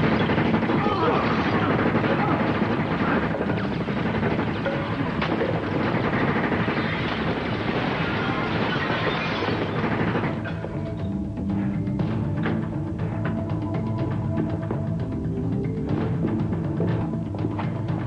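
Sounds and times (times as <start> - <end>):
gunfire: 0.0 - 10.8
dramatic score music: 0.0 - 18.0.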